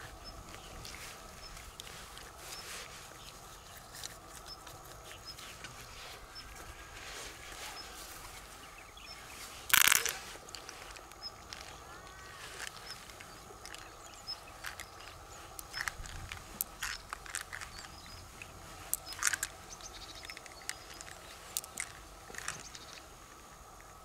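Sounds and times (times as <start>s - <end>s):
wet clicks and squelches: 12.6s - 23.0s.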